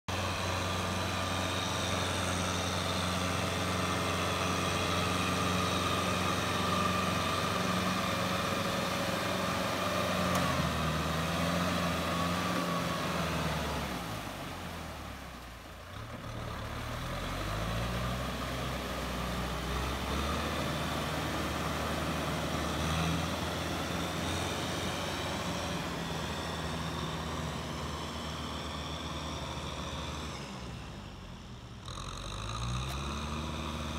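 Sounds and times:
tractor diesel engine under load: 0.1s - 33.9s.

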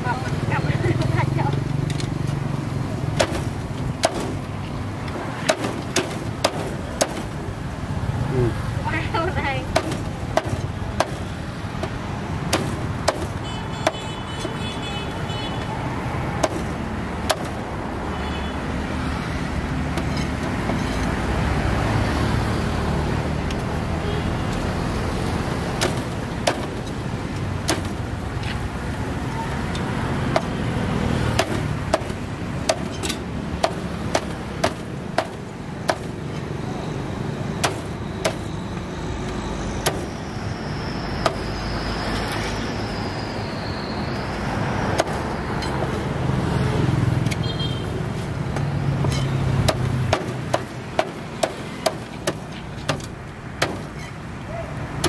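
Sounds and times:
vehicle passing: 0.0s - 13.1s, 15.2s - 35.7s, 38.5s - 55.0s
road traffic noise: 0.0s - 55.0s
sharp short knocks: 3.1s - 4.6s, 48.6s - 54.0s.

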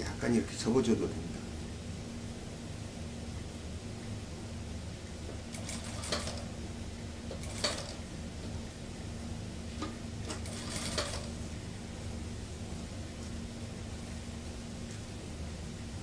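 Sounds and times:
sewing machine stitching: 5.5s - 6.5s, 7.4s - 8.0s, 10.3s - 11.4s.

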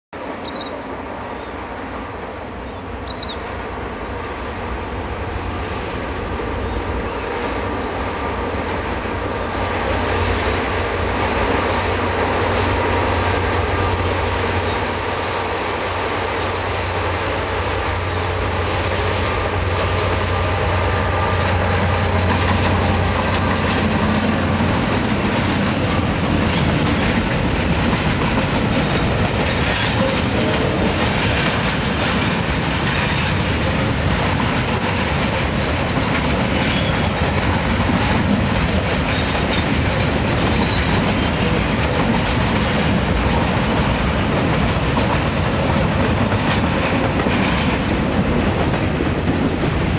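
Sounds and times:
train wheels rumbling and clattering: 0.2s - 49.9s
locomotives droning: 1.7s - 32.7s.

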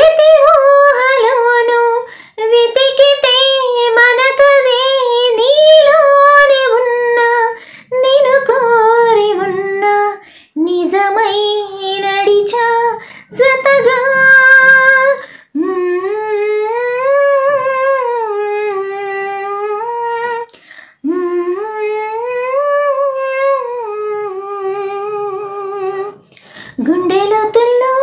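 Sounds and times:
woman singing unaccompanied: 0.0s - 28.0s
woman breathing: 2.0s - 2.4s, 7.6s - 8.0s, 10.2s - 10.6s, 13.0s - 14.5s, 15.1s - 15.6s, 20.5s - 21.0s, 26.2s - 26.9s.

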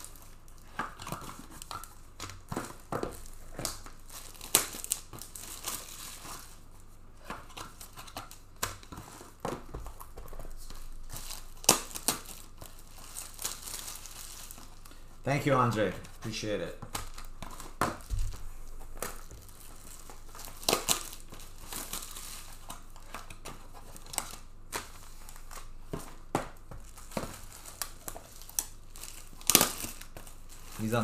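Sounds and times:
plastic packaging clicks and snaps: 0.0s - 6.4s, 7.2s - 15.0s, 16.8s - 31.0s.

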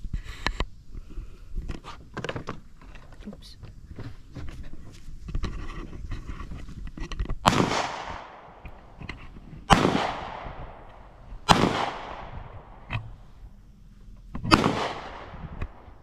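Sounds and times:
gunshots echoing: 7.4s - 9.0s, 9.6s - 13.3s, 14.5s - 16.0s.

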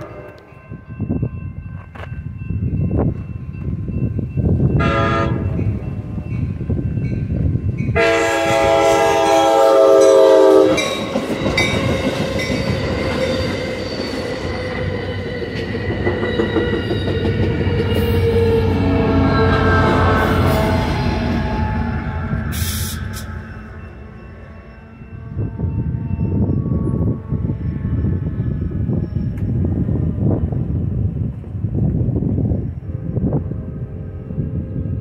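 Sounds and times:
train horn blasts: 0.0s - 0.5s, 4.8s - 5.6s, 7.9s - 11.1s, 17.9s - 28.9s
train cars rumbling: 0.0s - 35.0s.

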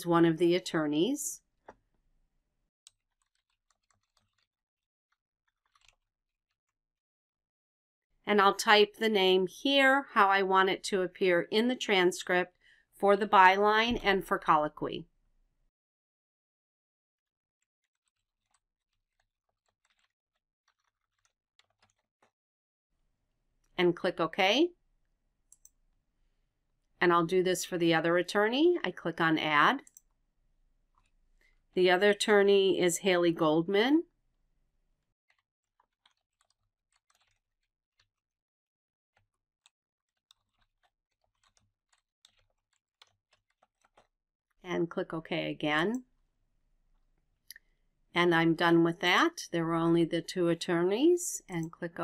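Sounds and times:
faint keyboard typing: 2.9s - 4.5s, 5.5s - 6.1s, 17.8s - 22.4s, 25.5s - 25.8s, 35.3s - 38.2s, 39.2s - 44.1s, 51.4s - 52.0s.

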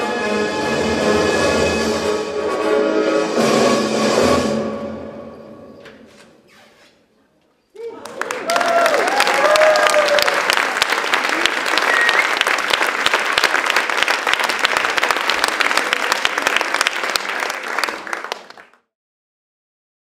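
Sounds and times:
people whooping: 7.8s - 12.6s
audience applauding: 7.8s - 18.9s.

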